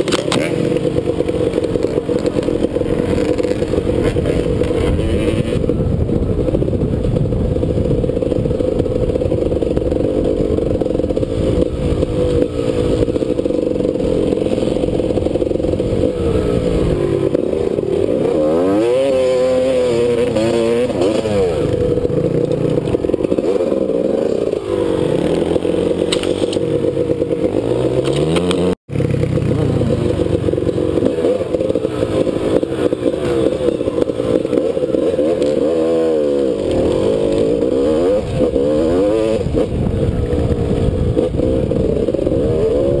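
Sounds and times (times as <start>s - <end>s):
dirt bike engine revving: 0.0s - 43.0s.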